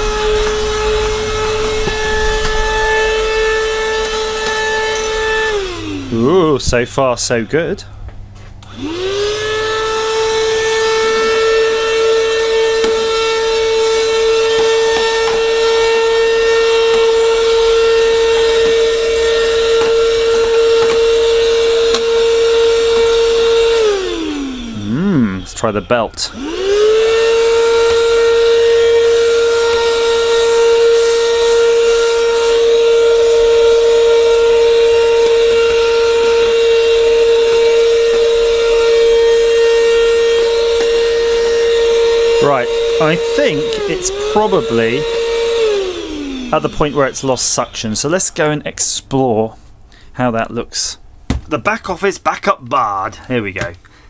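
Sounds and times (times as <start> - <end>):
handheld vacuum motor whine: 0.0 - 6.8, 8.6 - 48.3.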